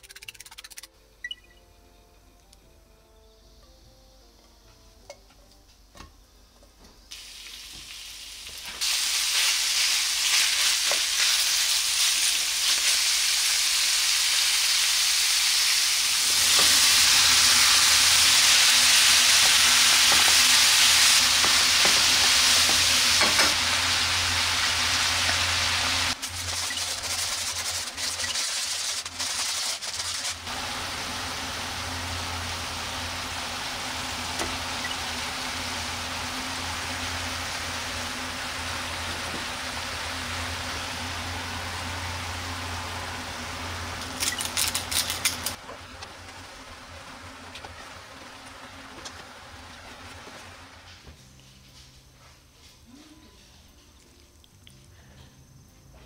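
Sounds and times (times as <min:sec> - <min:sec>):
food sizzling in hot oil: 0:07.1 - 0:51.0.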